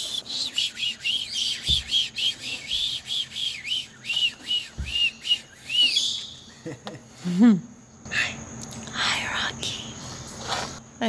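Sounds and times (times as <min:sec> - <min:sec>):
short whistled chirps: 0:00.0 - 0:06.5.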